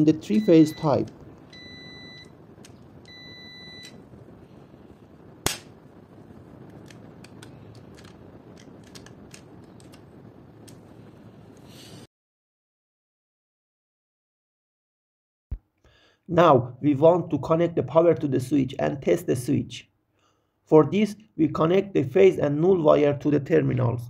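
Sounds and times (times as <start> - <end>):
meter continuity buzzer beeping: 0.2 - 2.4, 3.0 - 4.0.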